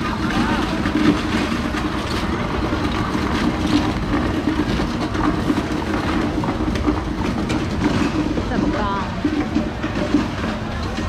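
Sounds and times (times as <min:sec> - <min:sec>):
traffic noise: 0:00.0 - 0:11.0.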